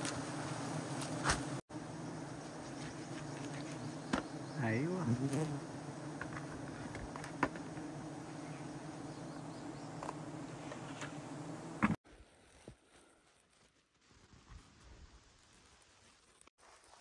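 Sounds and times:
bees buzzing: 0:00.0 - 0:12.0.

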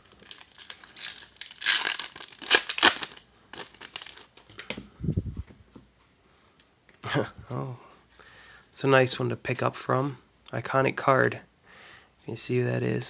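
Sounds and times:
foil wrapper crinkling torn open: 0:00.0 - 0:04.7.

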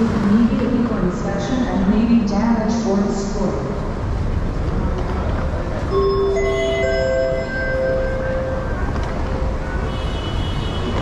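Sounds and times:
low rumble of traffic: 0:00.0 - 0:11.0
bell-like chime tones: 0:05.9 - 0:08.9.

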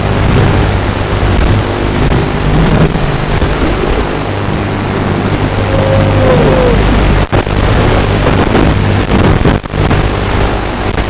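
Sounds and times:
heavy hiss: 0:01.8 - 0:07.8
falling motor whine: 0:01.9 - 0:08.2.

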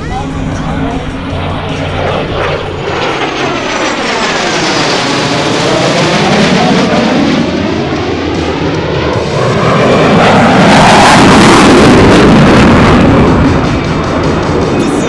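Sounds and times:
fighter jet noise: 0:00.0 - 0:15.0.

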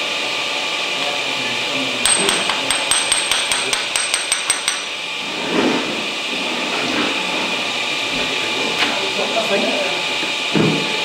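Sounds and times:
hammer tapping on steel: 0:02.1 - 0:04.9.

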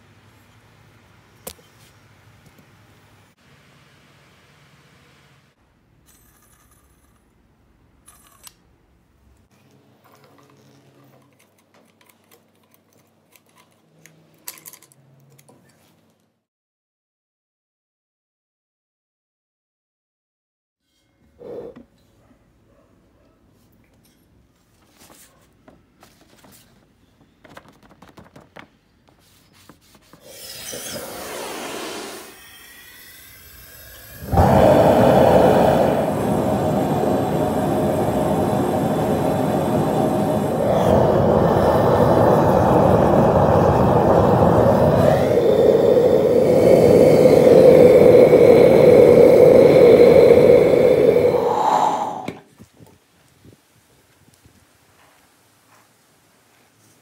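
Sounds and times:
rubbing and clicking handling noises: 0:10.1 - 0:16.2, 0:24.6 - 0:30.3
steady hiss: 0:29.2 - 0:57.0
gas burner rushing: 0:30.2 - 0:52.5.

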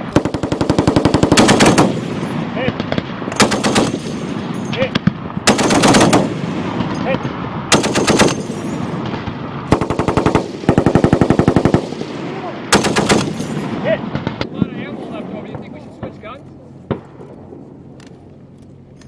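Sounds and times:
heavy machine gun bursts: 0:00.1 - 0:02.4, 0:03.3 - 0:04.2, 0:05.5 - 0:06.4, 0:07.7 - 0:08.8, 0:12.7 - 0:13.8.

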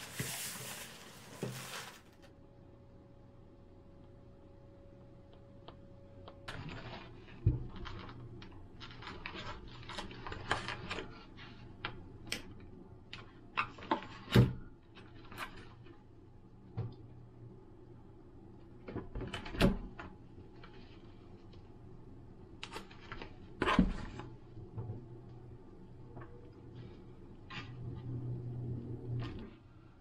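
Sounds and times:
plastic film crinkling: 0:00.0 - 0:02.3, 0:06.5 - 0:11.6.

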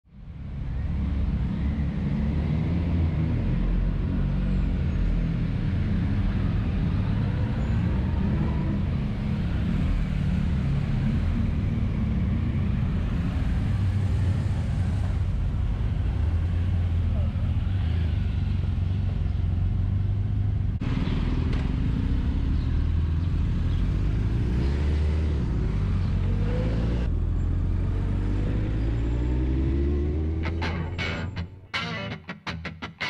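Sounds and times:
road noise: 0:00.1 - 0:33.0
motorcycle engine drone: 0:25.9 - 0:33.0.

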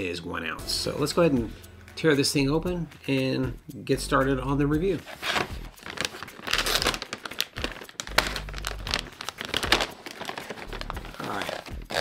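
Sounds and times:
snack bag crinkling: 0:05.8 - 0:12.0.

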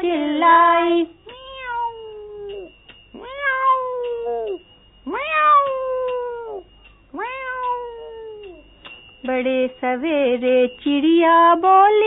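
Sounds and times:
cat meowing: 0:01.2 - 0:08.6.

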